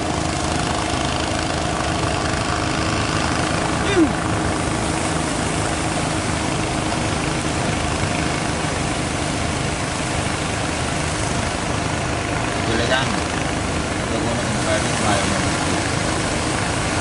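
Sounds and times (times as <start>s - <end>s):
boat engine drone: 0.0s - 17.0s.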